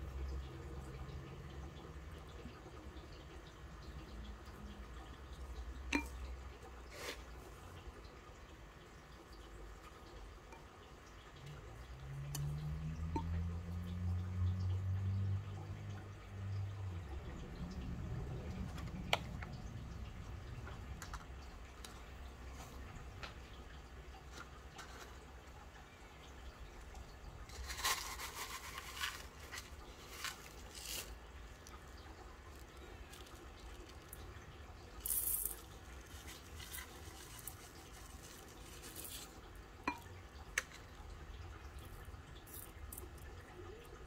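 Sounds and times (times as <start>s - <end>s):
gravel pouring into glass bowl: 27.4s - 31.7s, 32.5s - 40.1s, 41.8s - 43.2s.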